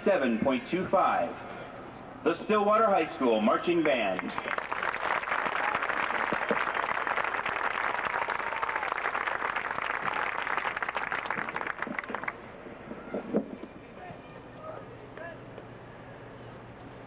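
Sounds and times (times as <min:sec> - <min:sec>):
crowd applauding: 0:03.8 - 0:12.4.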